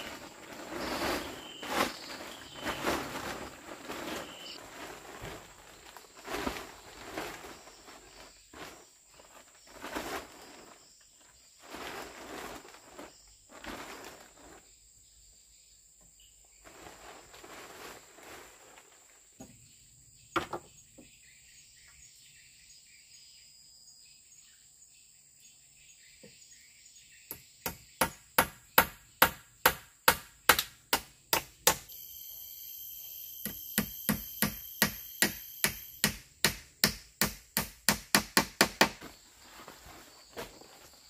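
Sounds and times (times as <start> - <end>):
buzzing insect call: 0.0 - 4.6, 31.8 - 36.2
high insect drone: 0.0 - 13.5, 31.7 - 37.0
hand tool striking: 27.3 - 31.9, 33.3 - 39.0.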